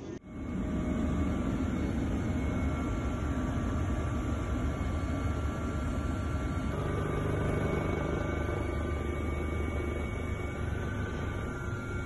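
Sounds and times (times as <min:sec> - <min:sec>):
aircraft engine drone: 0:00.0 - 0:12.0
faint whining tones: 0:00.0 - 0:12.0.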